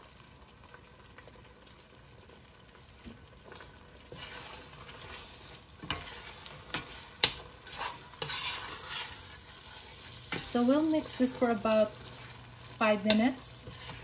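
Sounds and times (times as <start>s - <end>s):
food sizzling: 0.0s - 14.0s
metal spoon scraping a pot: 4.1s - 11.2s, 13.0s - 14.0s.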